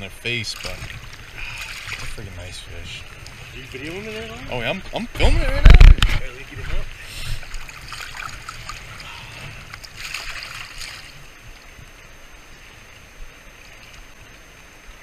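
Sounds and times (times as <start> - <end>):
river current rushing: 0.0 - 15.0
water splashing in a net: 0.4 - 2.3, 7.4 - 9.2, 9.8 - 11.2.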